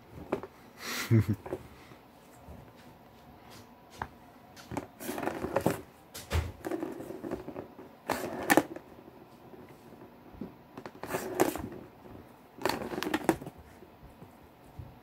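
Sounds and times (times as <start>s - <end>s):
ball clattering and scraping: 4.0s - 10.2s, 10.8s - 13.6s
plastic ball rolling in track: 4.6s - 9.6s, 12.6s - 13.5s.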